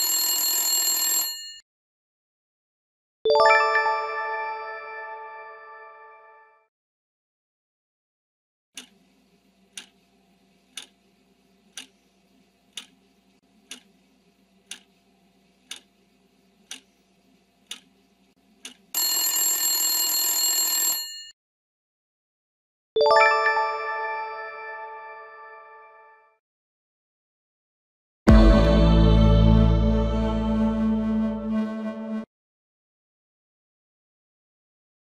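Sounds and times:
clock ticking: 8.8s - 9.0s, 9.8s - 10.0s, 10.7s - 11.0s, 11.7s - 12.0s, 12.7s - 13.0s, 13.6s - 13.9s, 14.7s - 14.9s, 15.7s - 15.9s, 16.7s - 16.9s, 17.7s - 17.9s, 18.6s - 18.9s
alarm bell ringing: 19.0s - 21.3s.

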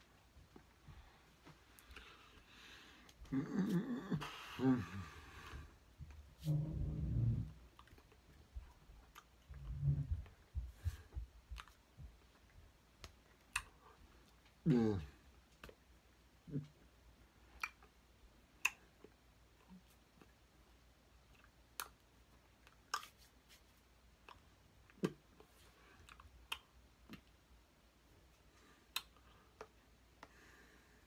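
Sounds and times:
low vocal grunts: 3.2s - 5.2s, 14.6s - 15.2s.

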